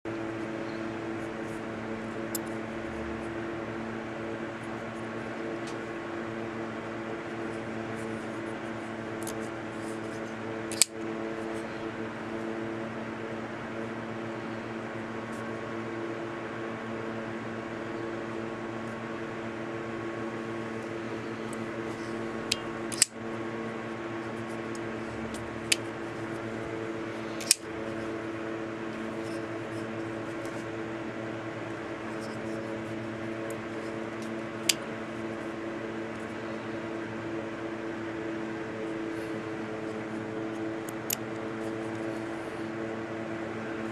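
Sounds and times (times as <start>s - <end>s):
steady low hum: 0.1s - 43.9s
folding knife metallic clicks: 22.9s - 23.1s, 27.4s - 27.6s.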